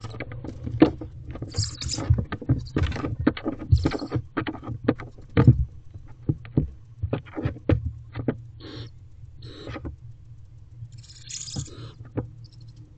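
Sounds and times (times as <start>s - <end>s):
steady low hum: 0.0s - 12.9s
owls scuffling in wooden box: 0.1s - 9.8s
owl hissing call: 8.6s - 9.8s, 11.0s - 12.0s.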